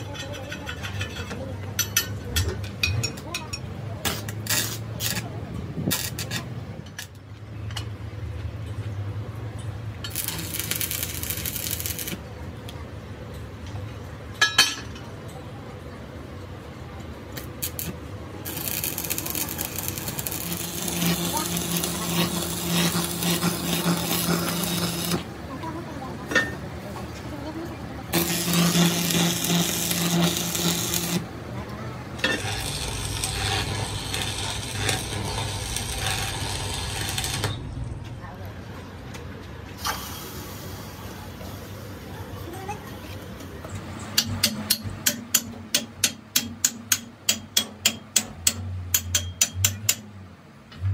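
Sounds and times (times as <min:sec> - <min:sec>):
steady electrical hum: 0:09.8 - 0:15.0, 0:16.9 - 0:39.7
welding arc crackling and hissing: 0:10.1 - 0:12.2, 0:17.4 - 0:25.3, 0:28.1 - 0:31.3, 0:32.2 - 0:37.6
sharp metallic knocks: 0:44.2 - 0:50.2.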